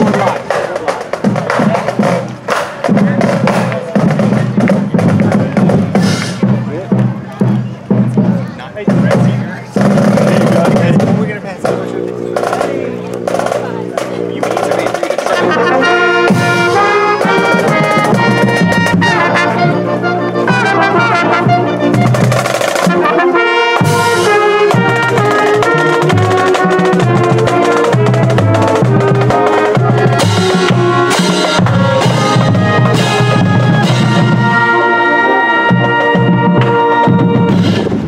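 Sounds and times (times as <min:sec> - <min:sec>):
marching band drums: 0:00.0 - 0:38.0
brass horns playing melody: 0:10.2 - 0:38.0.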